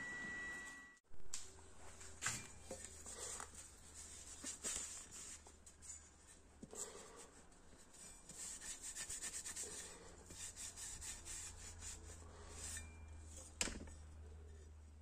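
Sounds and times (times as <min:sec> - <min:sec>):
cloth rubbing on steel blade: 0:07.8 - 0:13.1.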